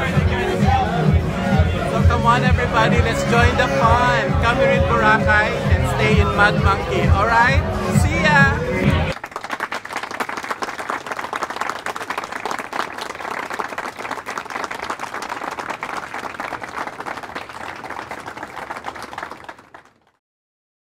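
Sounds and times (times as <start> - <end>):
crowd applauding: 8.9 - 20.2.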